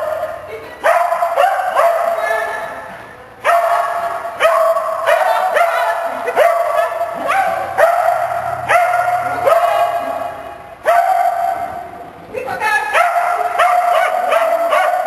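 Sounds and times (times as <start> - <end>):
dog barking: 0.0 - 2.5, 3.4 - 11.8, 12.9 - 15.0.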